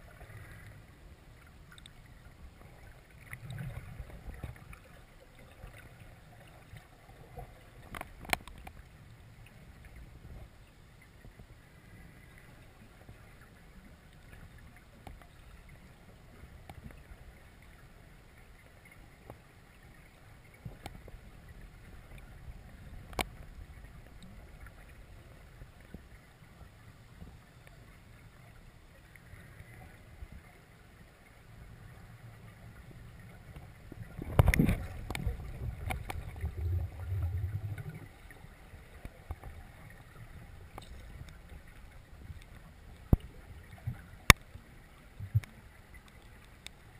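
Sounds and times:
underwater rumble: 0.0s - 46.9s
faint clicks: 1.4s - 11.5s, 12.1s - 17.8s, 18.4s - 22.4s, 23.0s - 24.9s, 27.2s - 30.5s, 32.7s - 44.6s, 45.2s - 46.9s
knocks underwater: 34.2s - 38.0s.

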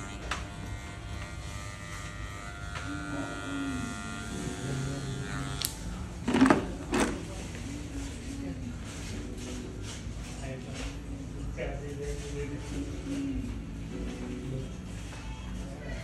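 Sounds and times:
electric hair clipper buzzing: 0.0s - 5.9s.

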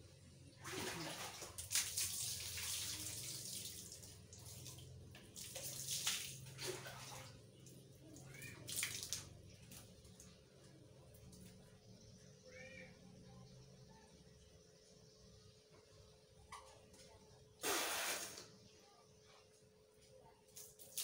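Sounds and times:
water splashing and running: 0.6s - 10.2s.

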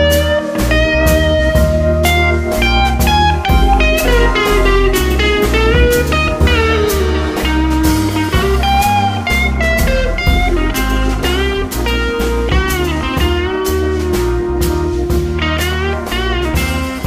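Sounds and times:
guitar melody with sliding notes: 0.0s - 17.0s
bass line: 2.5s - 8.9s.

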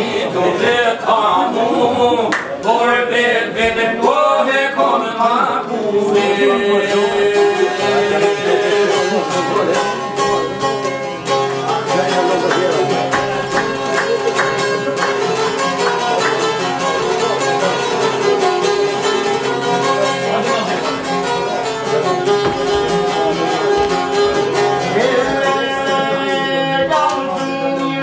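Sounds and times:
man singing: 0.0s - 9.8s, 24.8s - 28.0s
plucked lutes fast melody: 5.8s - 28.0s.

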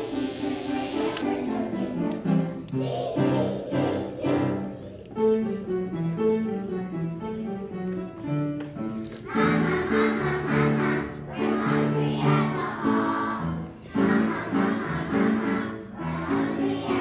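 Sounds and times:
children singing together: 0.0s - 5.7s, 9.2s - 17.0s
musical accompaniment: 0.0s - 17.0s.

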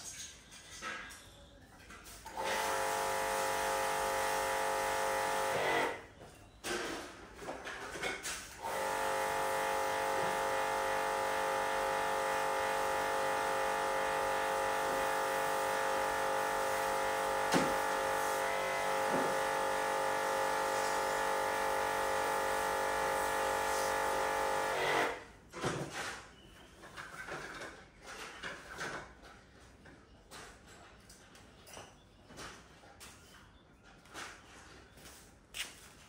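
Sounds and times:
electrical motor hum: 2.3s - 6.1s, 8.6s - 25.3s.

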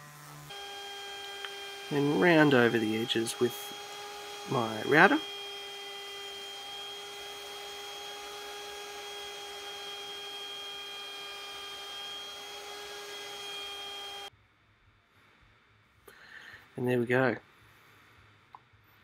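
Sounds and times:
router whining: 0.0s - 14.3s.

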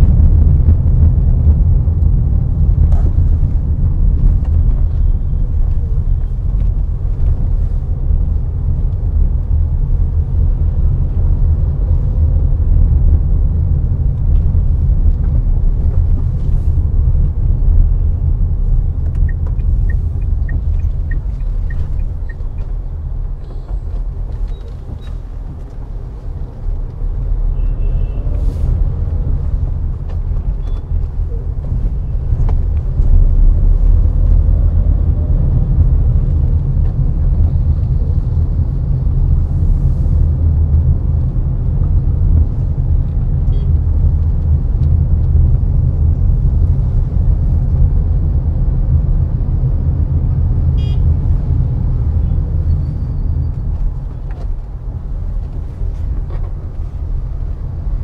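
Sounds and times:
car driving rumble: 0.0s - 58.0s.

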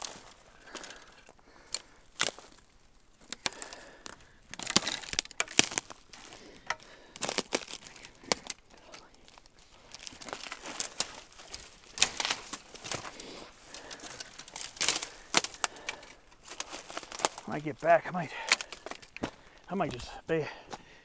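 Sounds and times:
twigs cracking and scraping: 0.0s - 20.9s
footsteps crunching through dry brush: 0.0s - 21.0s.

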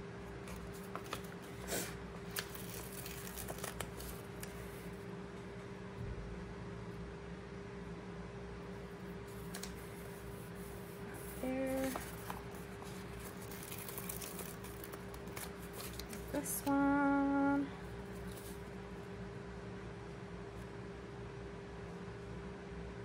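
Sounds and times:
low steady background hum: 0.0s - 23.0s
sticker paper rustling: 0.4s - 4.9s, 9.3s - 16.9s, 18.1s - 18.7s
person humming: 11.2s - 12.1s, 16.4s - 17.8s.

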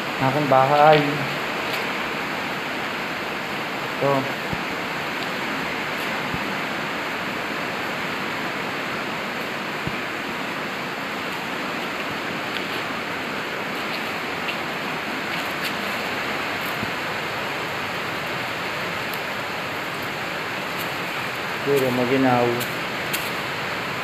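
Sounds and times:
heavy rain hissing: 0.0s - 24.0s.

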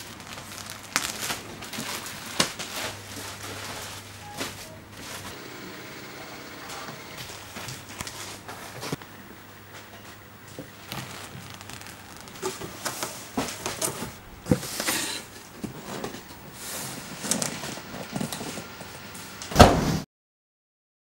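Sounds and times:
rustling plastic and cardboard: 0.0s - 5.4s, 6.4s - 9.0s, 9.7s - 19.3s
loud thump: 19.5s - 20.0s.

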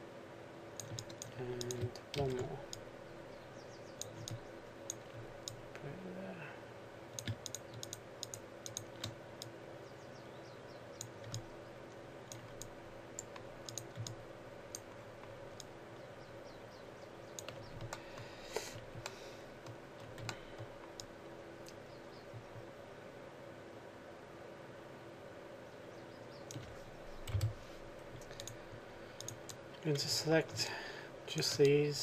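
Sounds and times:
faint background hum: 0.0s - 32.0s
mouse and keyboard clicks: 0.8s - 2.8s, 7.2s - 9.5s, 12.3s - 15.7s, 17.3s - 21.1s.

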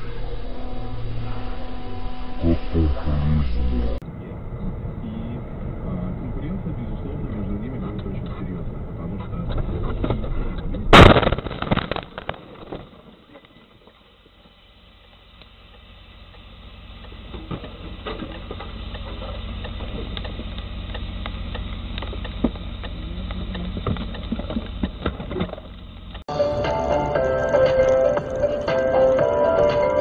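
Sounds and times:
low engine hum: 0.0s - 30.0s
vehicle crashing into truck: 10.8s - 13.3s
debris clattering: 10.9s - 14.0s.

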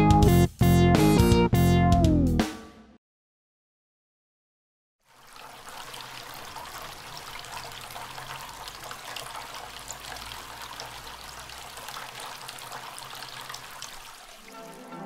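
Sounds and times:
water trickling onto pebbles: 5.0s - 15.0s.

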